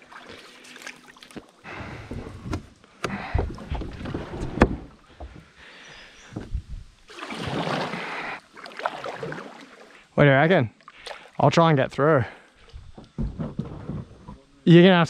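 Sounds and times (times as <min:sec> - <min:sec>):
water disturbance: 0:07.0 - 0:11.5.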